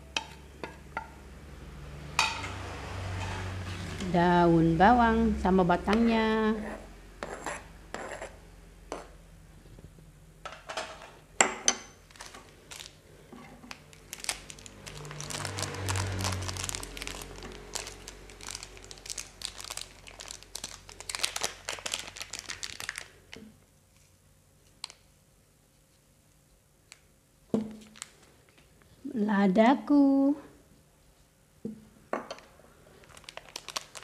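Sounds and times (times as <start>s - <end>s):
plastic sachet crinkling: 12.0s - 13.0s, 13.7s - 25.1s, 27.7s - 28.8s, 32.9s - 34.0s.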